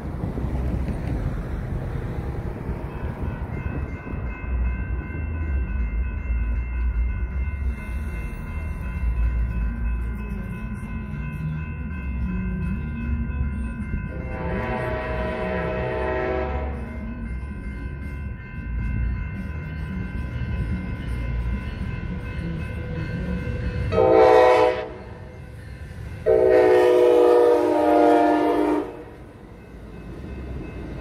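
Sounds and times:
electronic crossing bells ringing: 1.3 - 31.0
locomotive horn: 14.1 - 16.9, 23.9 - 25.2, 26.2 - 29.2.

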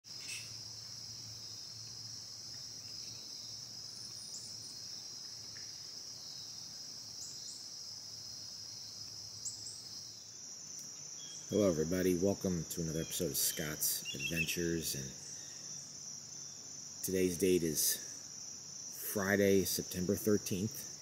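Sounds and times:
high-pitched insect chorus: 0.1 - 21.0.

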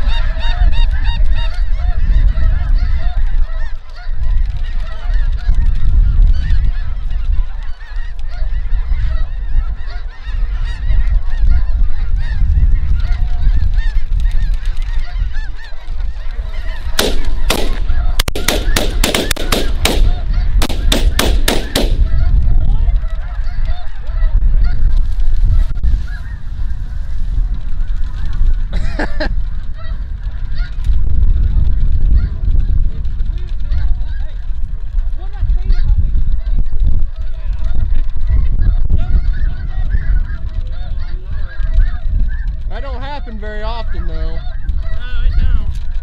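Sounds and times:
geese honking: 0.0 - 25.0, 25.9 - 27.1, 29.6 - 30.8, 38.3 - 45.6.

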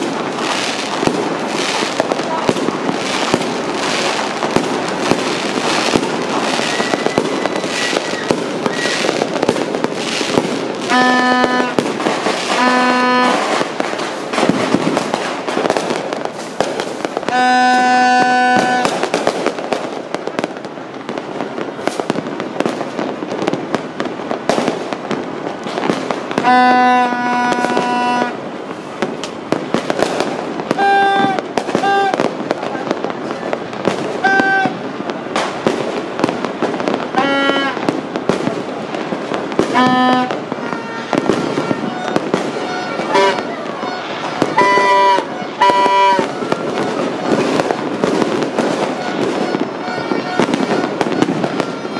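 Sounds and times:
fireworks popping and crackling: 0.0 - 51.9
horn blowing steady note: 10.8 - 13.7, 17.2 - 19.0, 26.4 - 28.5, 34.2 - 34.9, 37.2 - 37.8, 39.7 - 47.4, 48.8 - 51.9.

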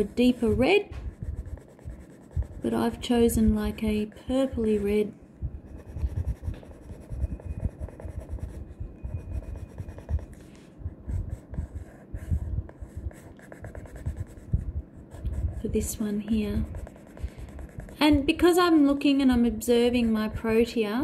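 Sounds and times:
pencil rubbing on paper: 0.0 - 3.0, 5.7 - 10.4, 11.1 - 18.2.

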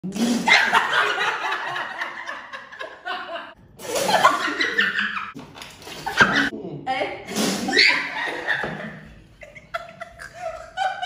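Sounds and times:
people laughing: 0.5 - 5.4, 7.7 - 11.0.

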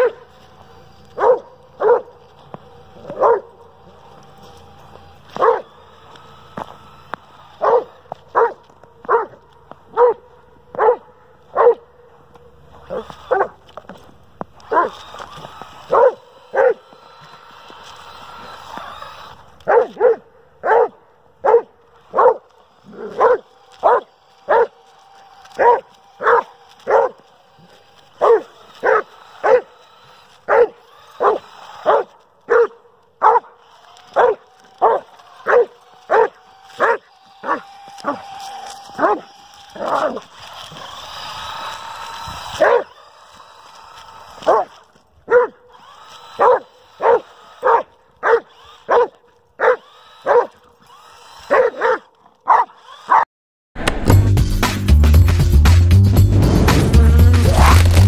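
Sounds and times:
dog barking: 0.0 - 0.2, 1.2 - 2.2, 3.0 - 3.6, 5.4 - 5.7, 7.6 - 11.9, 12.9 - 13.6, 14.7 - 15.0, 15.9 - 16.8, 19.7 - 24.8, 25.6 - 27.2, 28.2 - 29.7, 30.5 - 38.2, 39.0 - 39.2, 39.8 - 40.2, 42.6 - 42.9, 44.4 - 45.6, 46.4 - 50.6, 51.5 - 53.2
electric motor whine: 0.0 - 53.2, 55.9 - 58.0.

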